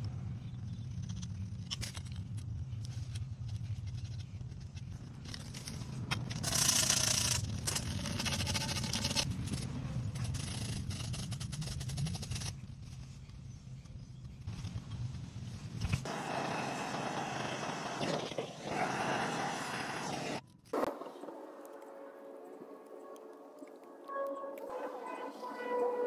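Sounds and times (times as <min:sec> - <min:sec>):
hiss: 0:16.1 - 0:20.4.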